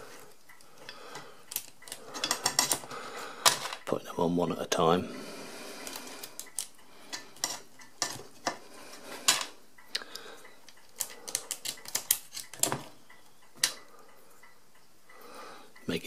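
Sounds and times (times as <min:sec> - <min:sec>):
metal pinwheels clicking and clinking: 0:00.8 - 0:03.9.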